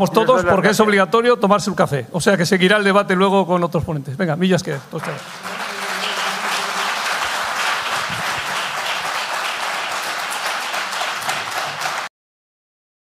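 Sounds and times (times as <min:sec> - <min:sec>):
audience applauding: 0:05.0 - 0:12.1.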